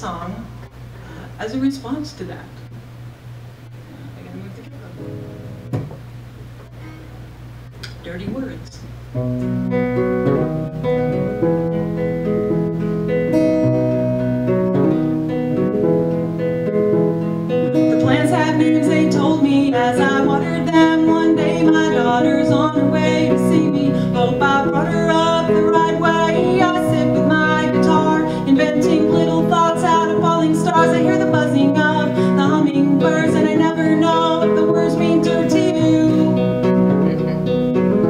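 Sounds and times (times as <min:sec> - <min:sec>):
strummed acoustic guitar: 0:09.1 - 0:38.0
woman singing: 0:17.8 - 0:36.5.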